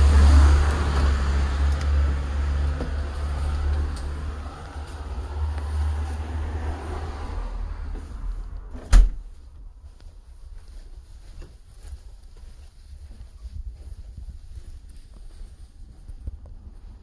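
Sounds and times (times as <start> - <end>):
wooden door slamming shut: 8.8 - 9.3.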